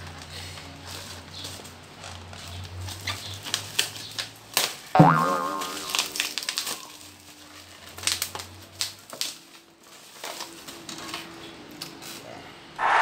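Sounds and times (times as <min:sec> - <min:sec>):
plastic packaging crinkling: 0:05.9 - 0:11.2.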